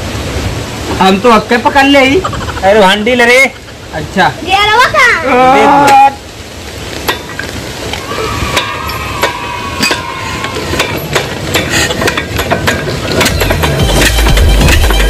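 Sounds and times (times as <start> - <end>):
hand crank clanking: 8.6 - 15.0.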